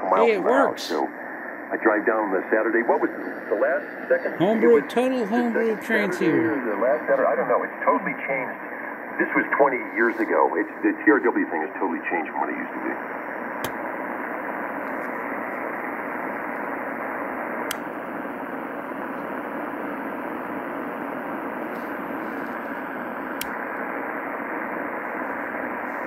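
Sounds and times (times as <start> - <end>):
radio receiver hiss: 0.0 - 26.0
sharp clicks: 13.6 - 13.8, 17.6 - 17.9, 23.4 - 23.6.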